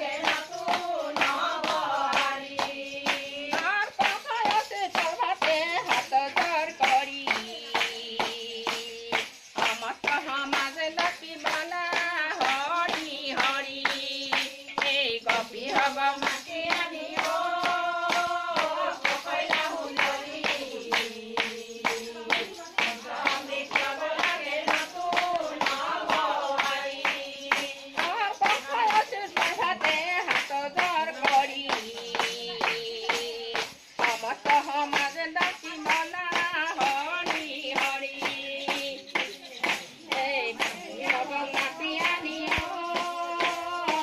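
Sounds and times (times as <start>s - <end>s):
hand claps: 0.0s - 44.0s
women singing together: 0.0s - 44.0s.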